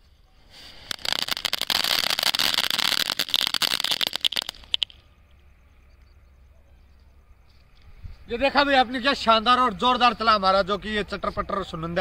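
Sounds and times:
crackling firework hissing: 0:00.0 - 0:05.0
firework pops: 0:00.7 - 0:05.0.

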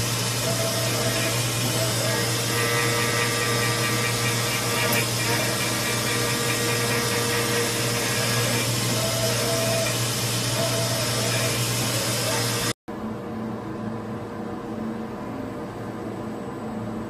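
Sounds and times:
milling machine cutting metal: 0:00.0 - 0:12.7
high machining tones: 0:00.0 - 0:12.8.

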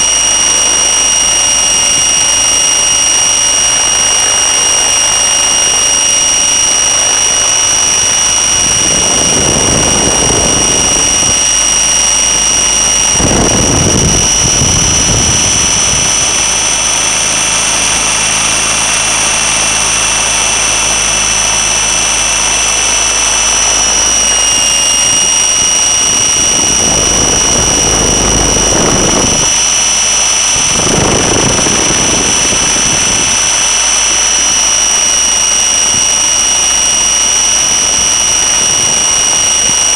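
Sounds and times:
electric helicopter motor whine: 0:00.0 - 0:39.9
rushing gusts of air: 0:06.9 - 0:33.9.

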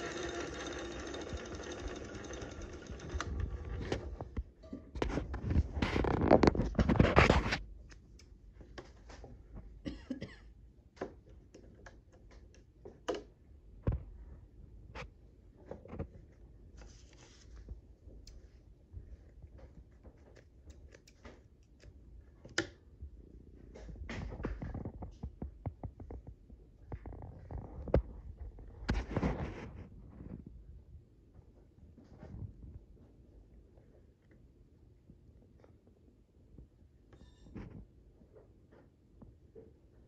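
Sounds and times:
metal bobbin clicks and scrapes: 0:00.0 - 0:03.8
sewing machine clatter: 0:00.0 - 0:04.3.

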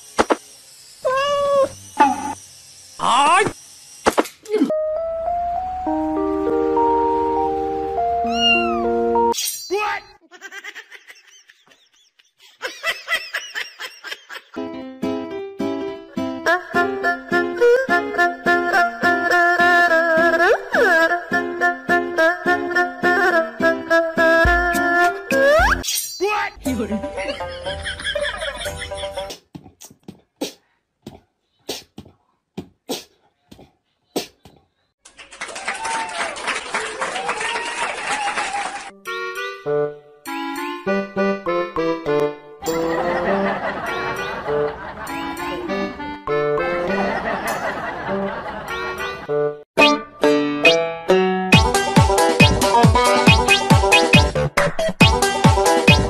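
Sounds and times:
cat meowing: 0:01.1 - 0:01.8, 0:08.2 - 0:08.9
background music: 0:04.7 - 0:09.4, 0:14.6 - 0:25.8, 0:26.6 - 0:29.3, 0:38.9 - 0:56.0.

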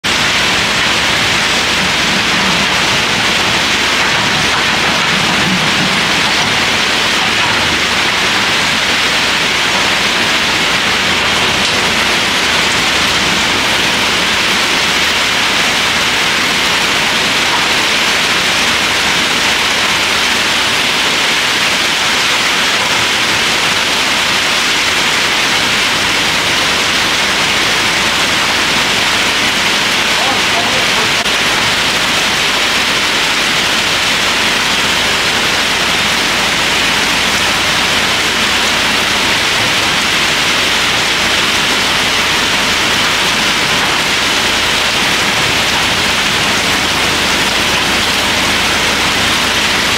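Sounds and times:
excavator diesel engine: 0:00.0 - 0:49.9
heavy rain: 0:00.0 - 0:49.9.

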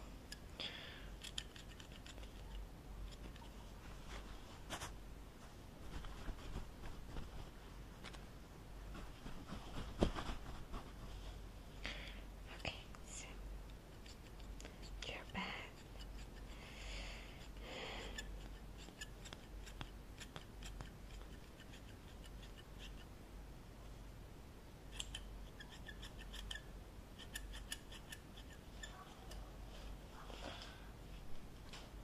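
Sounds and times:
scissors snipping hair: 0:01.2 - 0:03.5, 0:13.9 - 0:16.5, 0:17.4 - 0:23.1, 0:24.9 - 0:29.4.

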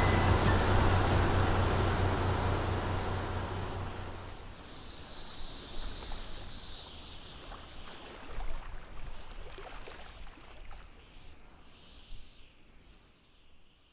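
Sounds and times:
water lapping and gurgling: 0:06.0 - 0:11.1.

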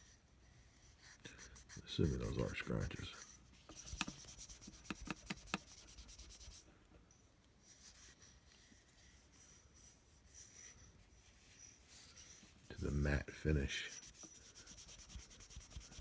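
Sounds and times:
hand rubbing tube swishing: 0:03.6 - 0:06.6, 0:14.0 - 0:16.0.

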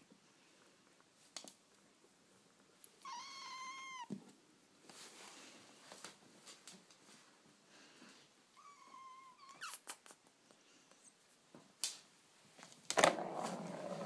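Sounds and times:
rustling: 0:04.1 - 0:08.3
ball knocking in plastic track: 0:12.9 - 0:14.0.

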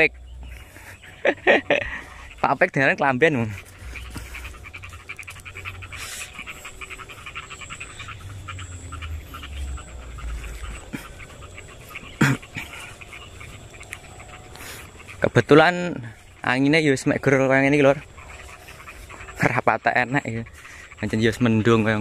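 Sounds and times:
person panting heavily: 0:00.4 - 0:02.4, 0:03.5 - 0:15.2, 0:18.3 - 0:19.4, 0:20.5 - 0:21.0.

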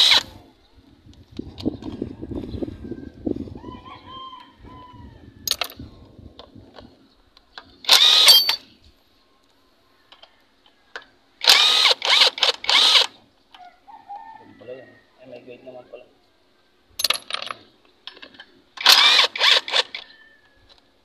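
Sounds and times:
impact wrench bursts: 0:07.9 - 0:08.6, 0:18.8 - 0:20.0.

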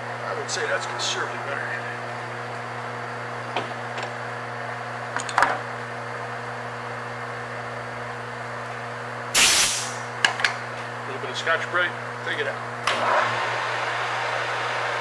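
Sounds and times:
loud hissing burst: 0:09.3 - 0:10.1
lathe humming: 0:13.0 - 0:15.0.

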